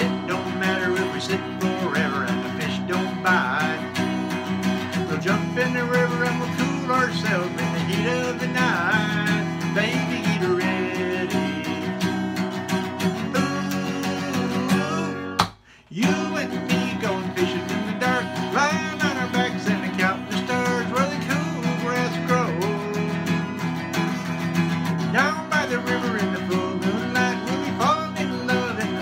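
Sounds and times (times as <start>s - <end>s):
acoustic guitar strumming: 0.0s - 29.0s.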